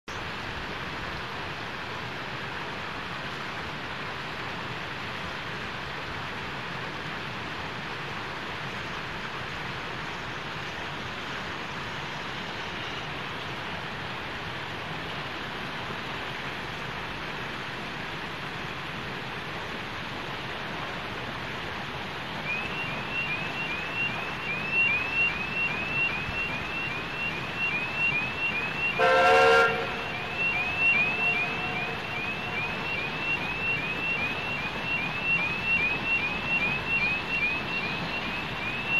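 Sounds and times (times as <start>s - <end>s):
level crossing alarm chirping: 22.4s - 38.9s
steam locomotive whistle: 28.0s - 34.2s.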